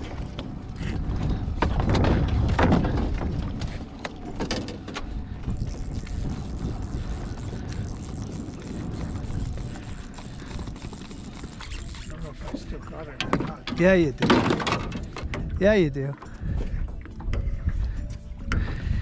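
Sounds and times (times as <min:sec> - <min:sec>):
water lapping: 0:00.0 - 0:14.2, 0:14.8 - 0:19.0
wind rumble: 0:00.0 - 0:19.0
fishing reel clicks: 0:05.6 - 0:12.3.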